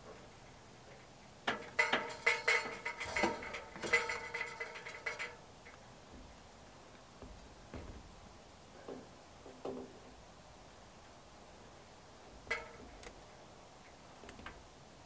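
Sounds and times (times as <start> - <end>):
metal chimney pipe clanking: 1.5 - 6.4, 12.5 - 13.1.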